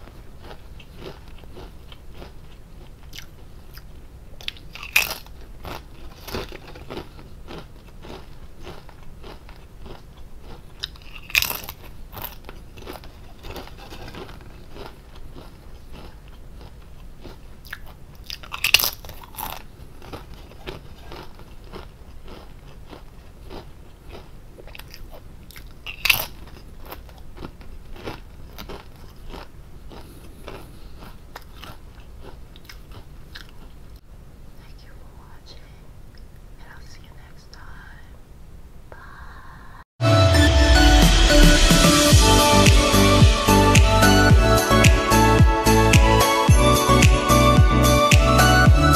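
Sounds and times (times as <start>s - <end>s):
potato chips crunching bites: 0.0s - 33.7s
crunchy chewing: 0.0s - 34.0s.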